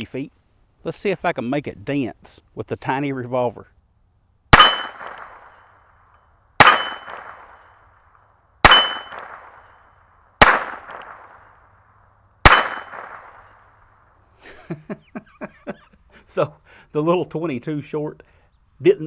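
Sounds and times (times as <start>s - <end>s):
revolver gunshots: 4.5s - 5.8s, 6.6s - 7.8s, 8.6s - 11.8s, 12.4s - 13.9s
steel target ringing: 4.6s - 5.6s, 6.6s - 7.6s, 8.6s - 9.8s, 12.4s - 13.3s.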